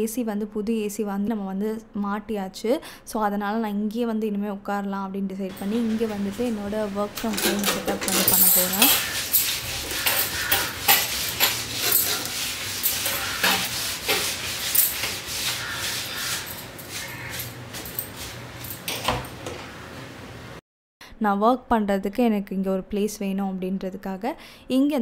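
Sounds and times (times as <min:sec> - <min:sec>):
household objects knocking and clattering: 0:05.5 - 0:19.8.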